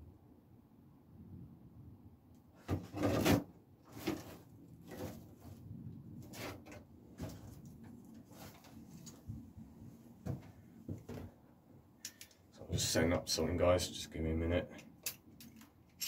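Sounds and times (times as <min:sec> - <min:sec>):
rustles: 0:02.6 - 0:11.4
sliding scrape: 0:02.7 - 0:07.6, 0:08.2 - 0:08.8.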